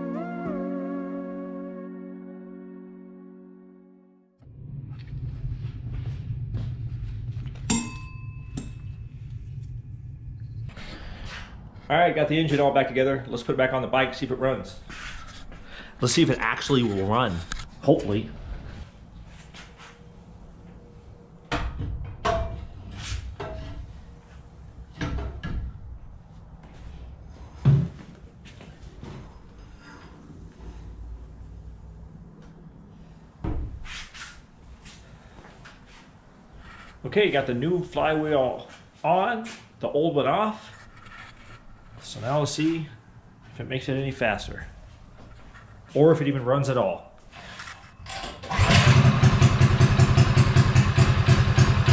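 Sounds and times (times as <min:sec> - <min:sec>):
low steady hum: 0:02.1 - 0:14.9
metallic clink: 0:07.7 - 0:09.0
metal clunks and knocks: 0:21.5 - 0:22.7.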